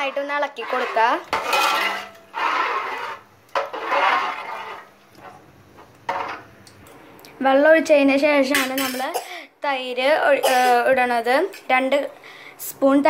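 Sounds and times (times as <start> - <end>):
spoon stirring liquid in pot: 0.0 - 6.5.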